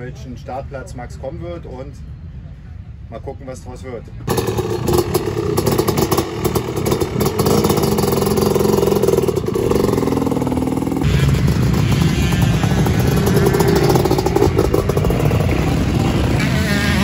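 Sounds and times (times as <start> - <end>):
motocross bike engine revving: 4.3 - 17.0.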